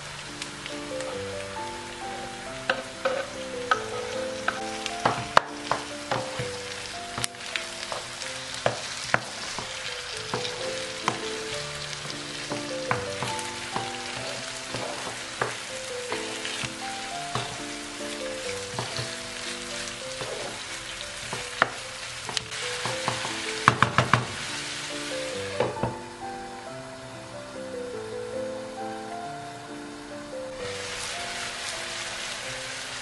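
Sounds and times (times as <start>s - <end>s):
food sizzling in a frying pan: 0.0s - 33.0s
wooden spoon knocking on pan: 2.7s - 24.5s, 25.6s - 26.0s.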